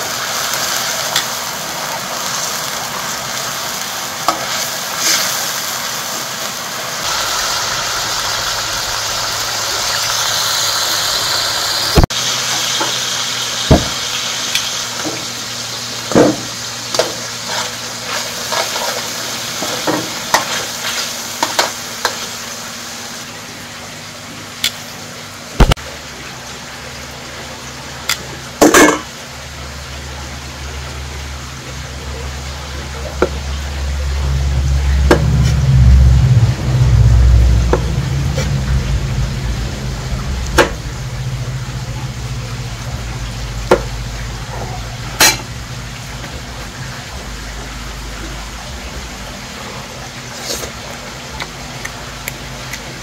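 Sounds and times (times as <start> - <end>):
steady cooking hiss: 0.0 - 53.0
low rumble: 7.0 - 12.1, 32.1 - 50.1
utensils clinking on pots: 28.1 - 29.1, 44.5 - 45.5.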